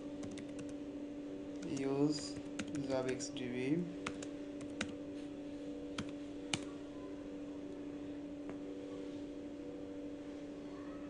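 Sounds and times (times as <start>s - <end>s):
steady low hum: 0.0s - 11.0s
keyboard keystrokes: 0.2s - 0.8s, 1.6s - 3.2s, 6.0s - 6.7s.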